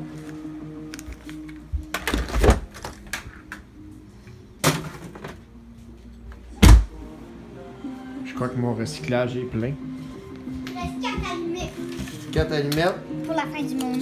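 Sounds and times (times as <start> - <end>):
background music: 0.0 - 14.0
objects clattering and rustling: 1.0 - 3.7, 4.6 - 5.5.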